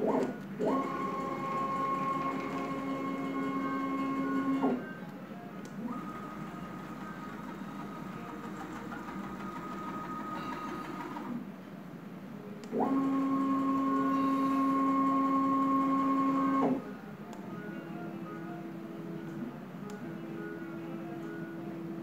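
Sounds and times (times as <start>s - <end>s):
cnc router motors whining: 12.8s - 16.8s.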